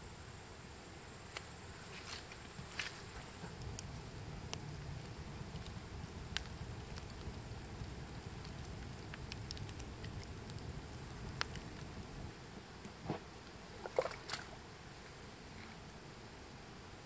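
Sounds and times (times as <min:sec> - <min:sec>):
sharp crackles and clicks: 0:02.1 - 0:13.2
steady low rumble: 0:03.2 - 0:13.9.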